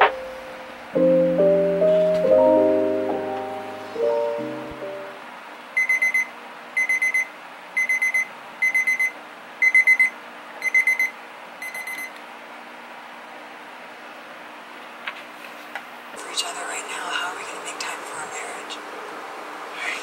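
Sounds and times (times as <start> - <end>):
kitchen timer beeping: 5.8 - 12.1.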